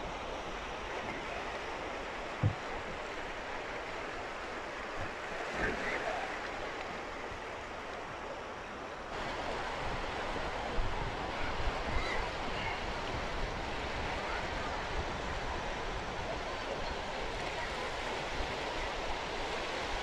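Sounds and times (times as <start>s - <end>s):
waves washing over rocks: 9.0s - 20.0s.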